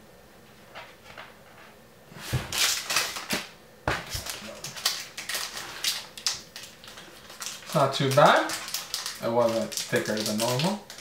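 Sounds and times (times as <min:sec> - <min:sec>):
cards rustling: 0:02.2 - 0:11.0
foil wrapper crinkling and tearing: 0:02.5 - 0:11.0.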